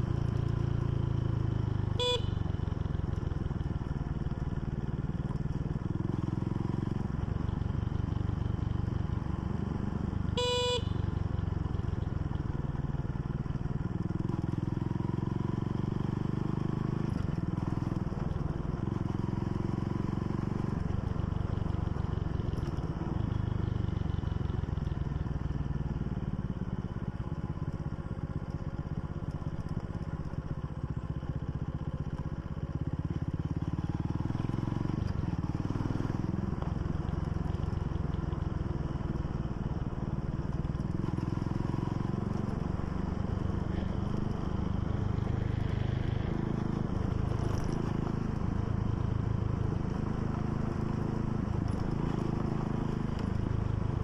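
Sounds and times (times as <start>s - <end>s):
motorcycle engine running: 0.0s - 54.0s
short beep: 1.9s - 2.6s, 10.2s - 11.2s.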